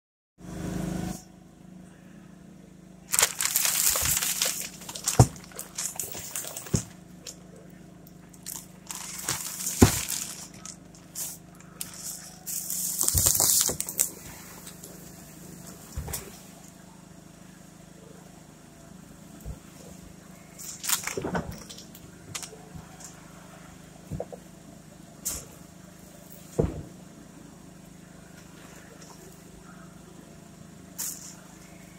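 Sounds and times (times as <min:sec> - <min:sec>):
steady low hum: 0:00.4 - 0:31.9
plastic wrapping crinkling: 0:03.1 - 0:07.4, 0:08.3 - 0:15.1, 0:20.6 - 0:22.5.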